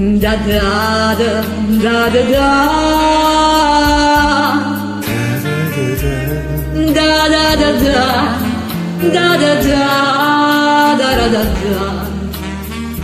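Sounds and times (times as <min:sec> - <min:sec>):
karaoke backing track: 0:00.0 - 0:13.0
person singing long notes: 0:05.0 - 0:10.4.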